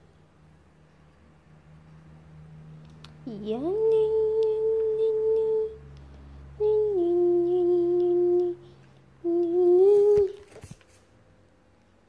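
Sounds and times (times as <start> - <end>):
person humming long notes: 6.6 - 8.6, 9.2 - 10.4.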